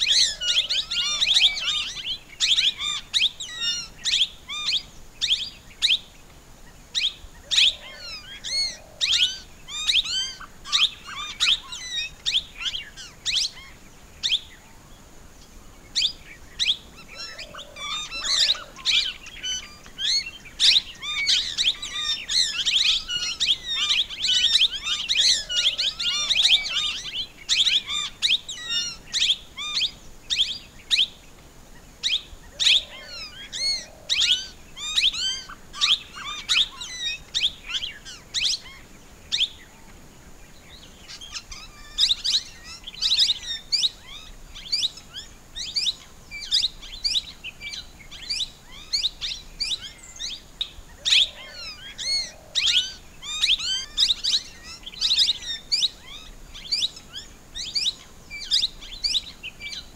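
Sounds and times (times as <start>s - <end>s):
parakeet calling: 0.0s - 5.9s, 51.0s - 59.8s.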